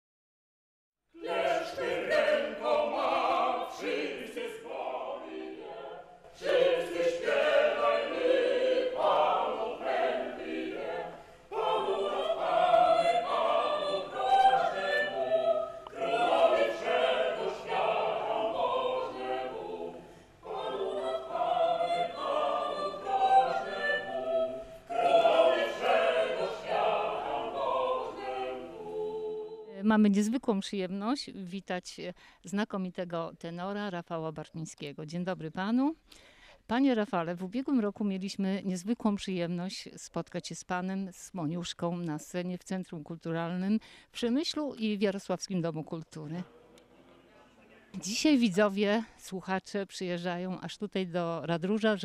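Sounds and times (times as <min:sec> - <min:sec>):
choir singing: 0:01.1 - 0:29.7.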